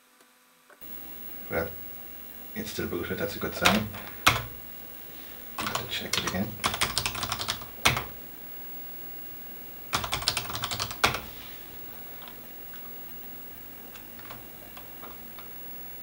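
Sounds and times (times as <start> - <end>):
keyboard typing: 3.5 - 4.6, 5.6 - 8.2, 9.9 - 11.3.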